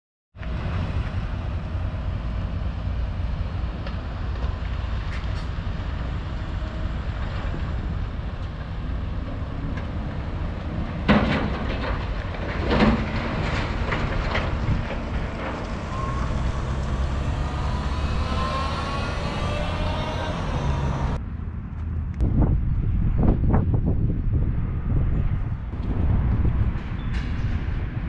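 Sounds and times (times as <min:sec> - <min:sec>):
excavators rumbling: 0:00.4 - 0:21.2
loud clattering crashes: 0:11.0 - 0:21.2
wind on microphone: 0:12.7 - 0:28.0.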